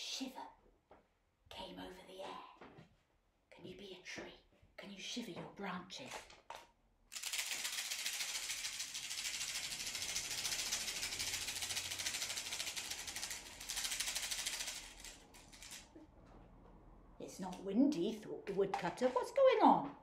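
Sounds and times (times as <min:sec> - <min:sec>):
rainstick hissing rattle: 0:07.1 - 0:15.8.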